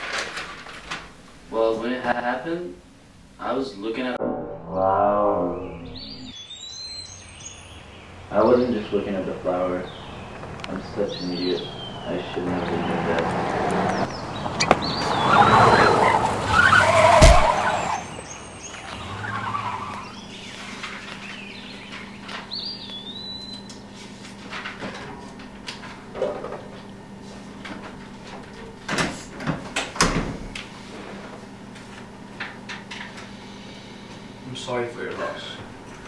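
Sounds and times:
tyres skidding on road: 9.0s - 20.2s
sharp impact hit: 17.2s - 17.8s.

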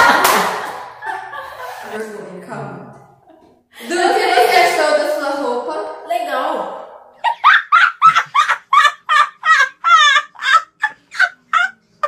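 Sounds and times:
boy laughing hard: 7.2s - 11.8s.

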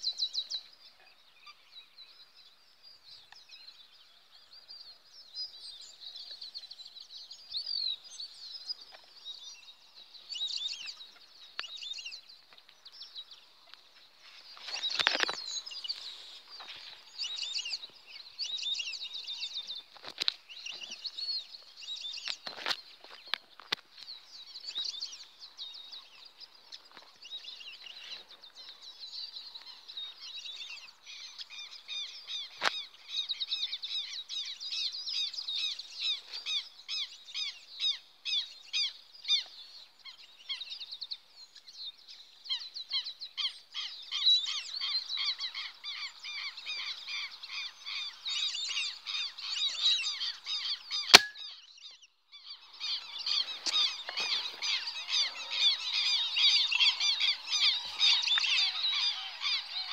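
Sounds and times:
flock of birds calling: 42.6s - 51.6s, 52.4s - 59.9s
sharp crack: 51.1s - 51.4s.

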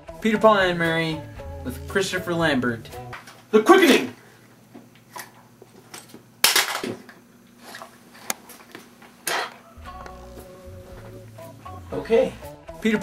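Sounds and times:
low music: 0.0s - 3.2s, 9.6s - 13.0s.

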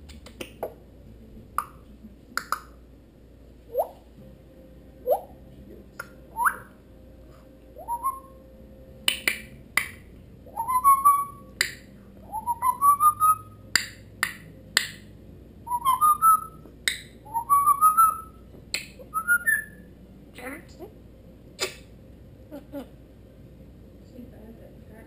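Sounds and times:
parrot rising whistles: 6.3s - 6.7s, 7.8s - 8.4s, 10.5s - 11.5s, 12.2s - 13.6s, 15.7s - 16.6s, 17.2s - 18.4s, 19.0s - 19.9s.

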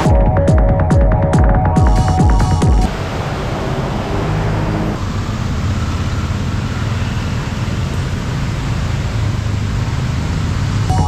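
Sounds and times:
vehicle engine drone: 0.0s - 11.0s
rushing hiss: 2.9s - 7.4s.

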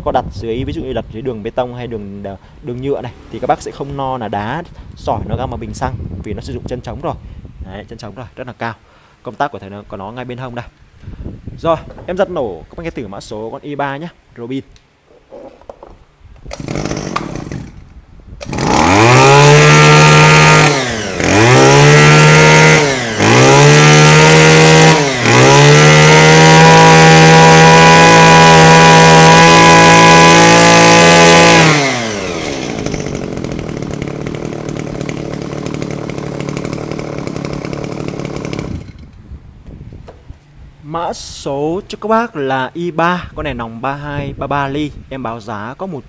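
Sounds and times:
brush cutter engine revving: 2.8s - 4.3s, 16.5s - 39.3s.

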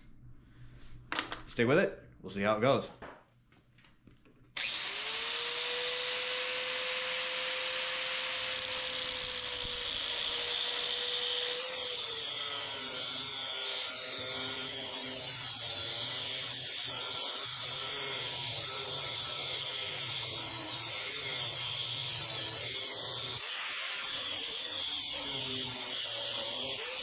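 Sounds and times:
angle grinder whining: 4.6s - 27.0s
cutoff wheel cutting steel: 4.6s - 27.0s.

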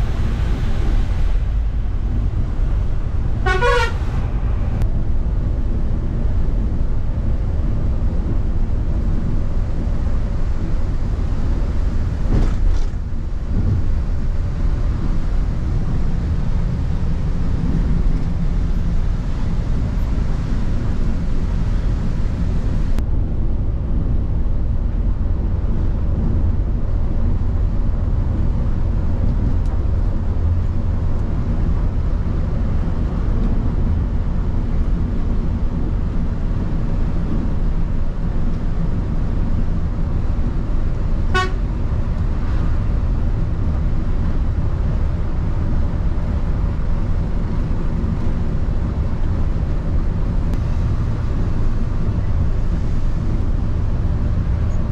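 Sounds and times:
bus diesel engine drone: 0.0s - 54.9s
road noise: 0.0s - 54.9s
horn toot: 3.4s - 4.6s, 41.3s - 41.6s.

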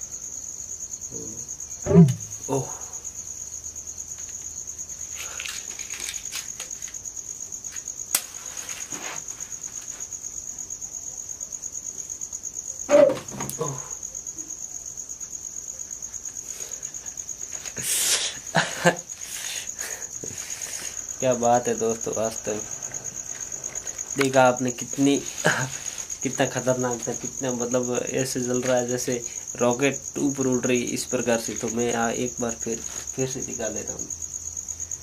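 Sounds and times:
crickets chirping: 0.0s - 35.0s
rustling: 4.1s - 10.2s, 20.1s - 27.4s.

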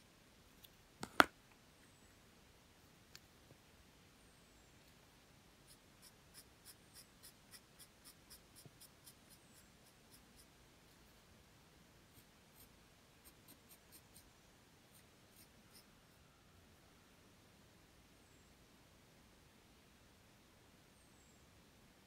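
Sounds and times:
pencil scratching on paper: 5.7s - 11.2s, 12.1s - 14.3s.

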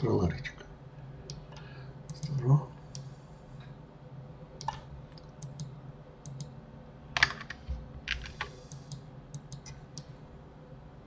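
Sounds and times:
faint low hum: 0.0s - 11.0s
keyboard and mouse clicks: 4.6s - 6.5s, 7.2s - 10.1s.

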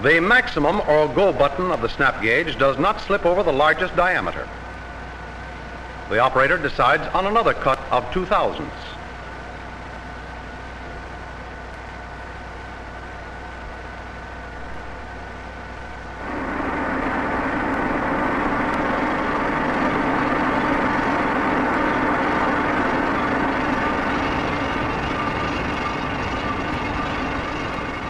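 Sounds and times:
lathe machine hum: 0.0s - 28.0s
low drone: 14.4s - 28.0s.

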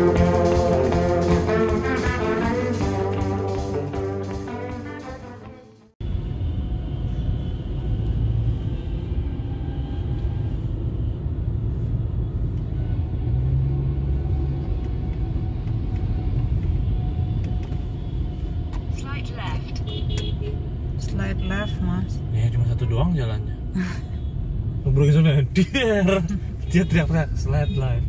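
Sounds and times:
car engine and tyres rumbling: 6.3s - 21.1s.

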